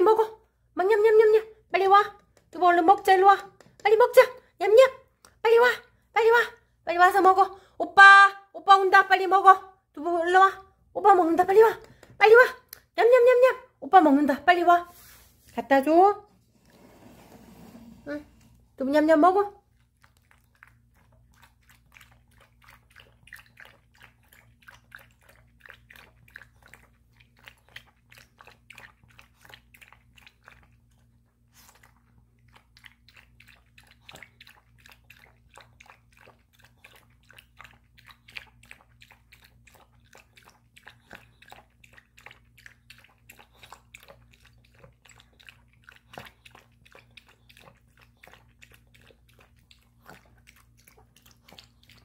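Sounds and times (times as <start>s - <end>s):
dog lapping and chewing: 19.1s - 52.0s.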